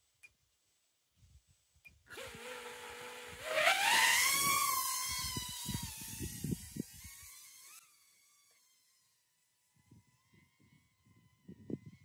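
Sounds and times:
drone motors whining: 0:02.1 - 0:09.2.

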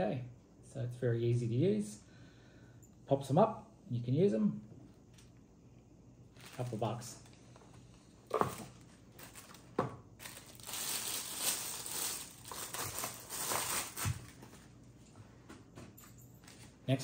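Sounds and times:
plastic packaging crinkling: 0:06.3 - 0:14.8.

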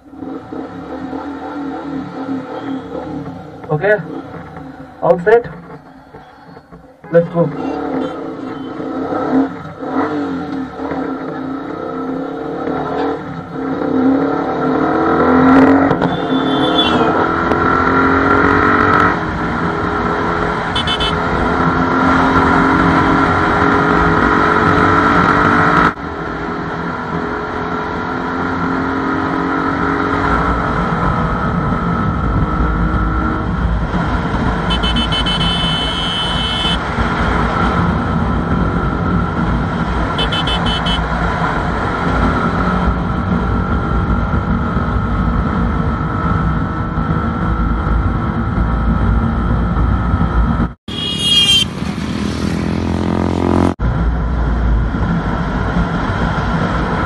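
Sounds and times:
motorcycle engine accelerating: 0:07.6 - 0:57.0.

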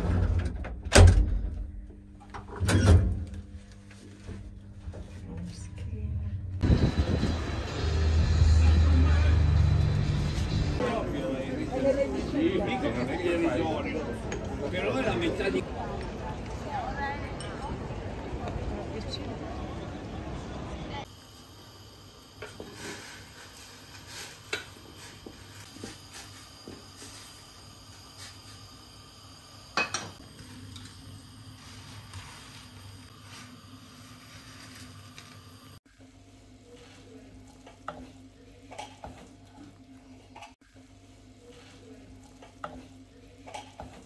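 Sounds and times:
low hum: 0:01.3 - 0:10.8.

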